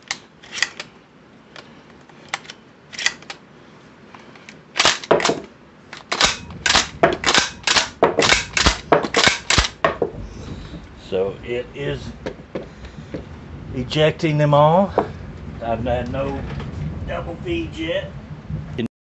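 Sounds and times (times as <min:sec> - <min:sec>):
shotgun racking clacks: 0:00.0 - 0:01.0, 0:01.6 - 0:03.4, 0:04.2 - 0:09.8.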